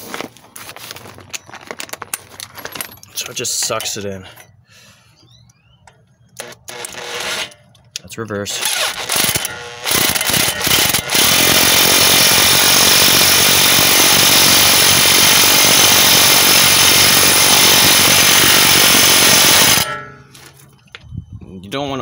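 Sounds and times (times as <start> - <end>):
impact wrench running: 6.4 - 7.7, 8.5 - 20.2.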